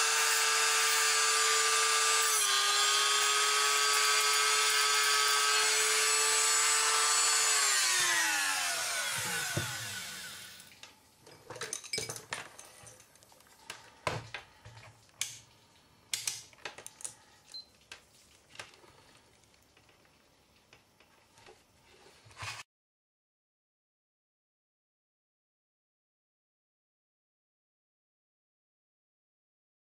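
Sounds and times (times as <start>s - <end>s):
rotary tool whining: 0.0s - 10.7s.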